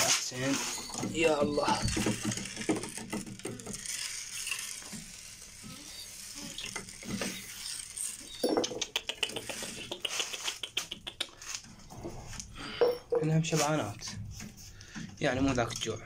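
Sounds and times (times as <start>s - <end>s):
grain pouring into wooden trough: 0.1s - 8.3s
sharp clicks and taps: 8.4s - 11.7s.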